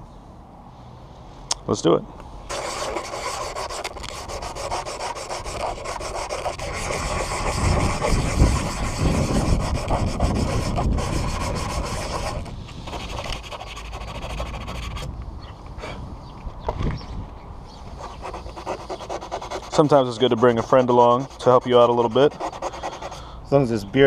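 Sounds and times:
hand sanding scratchy rubbing: 2.5 - 15.1, 17.9 - 23.2.

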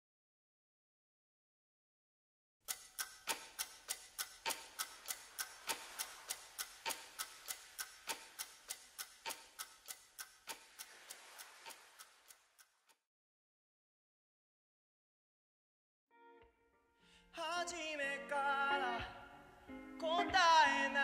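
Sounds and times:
clock ticking: 2.7 - 13.0.

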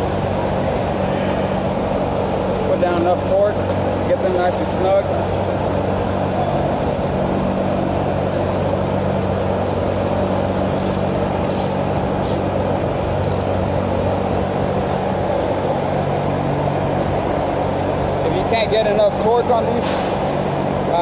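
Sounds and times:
low workshop hum: 0.0 - 21.0
hand ratchet clicking: 3.1 - 5.6, 6.8 - 7.2, 9.8 - 12.5, 13.2 - 13.5.

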